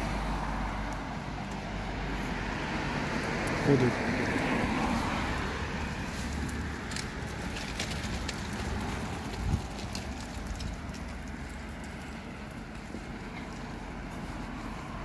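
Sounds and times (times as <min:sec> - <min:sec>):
car driving past: 0:00.0 - 0:09.7.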